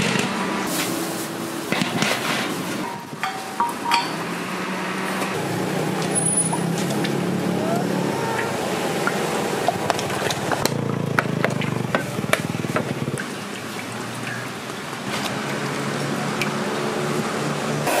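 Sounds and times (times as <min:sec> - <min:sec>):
engine humming: 0:00.0 - 0:18.0.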